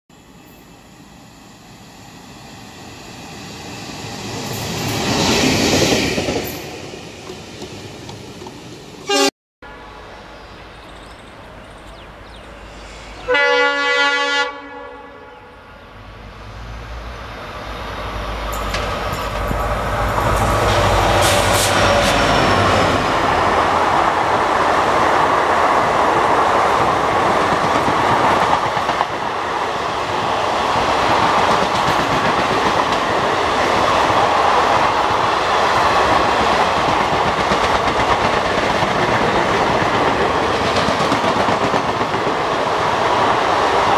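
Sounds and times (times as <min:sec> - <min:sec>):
train running noise: 0:00.2 - 0:14.4, 0:15.7 - 0:43.9
train wheels on rails: 0:00.3 - 0:09.1, 0:16.4 - 0:43.9
locomotive horn: 0:09.0 - 0:10.3, 0:13.2 - 0:15.7.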